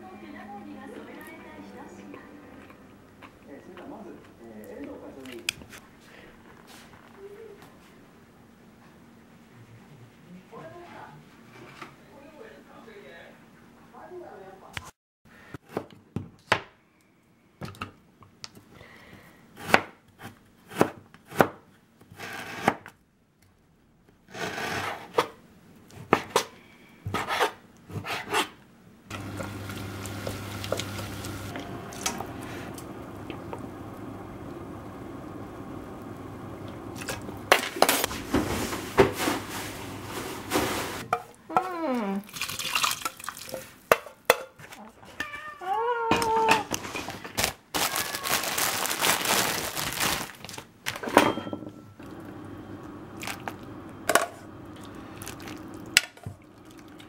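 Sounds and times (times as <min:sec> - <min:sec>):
knife chopping on cutting board: 0:19.6 - 0:21.7
food sizzling in a pot: 0:29.1 - 0:41.1
cookware clatter: 0:51.0 - 0:51.8.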